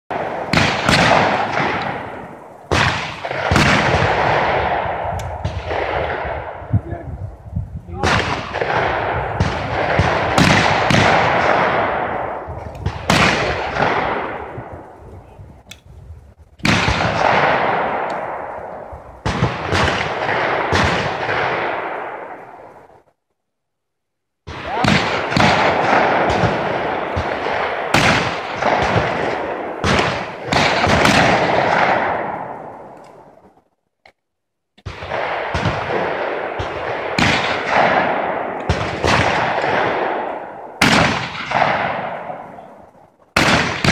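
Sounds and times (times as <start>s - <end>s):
shotgun shots echoing: 0.1s - 7.0s, 7.9s - 14.8s, 16.6s - 22.9s, 24.4s - 33.3s, 34.8s - 43.9s.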